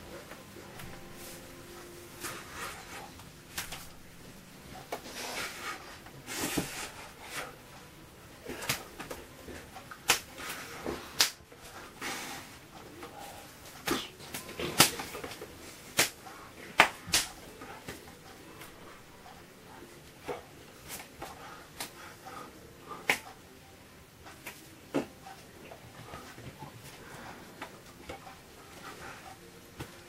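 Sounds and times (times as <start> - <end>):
hand slaps: 3.5 - 3.9, 9.9 - 10.5, 11.2 - 11.4, 13.8 - 16.2, 16.8 - 18.0, 23.0 - 23.2, 24.4 - 24.6
finger snaps: 23.0 - 23.3.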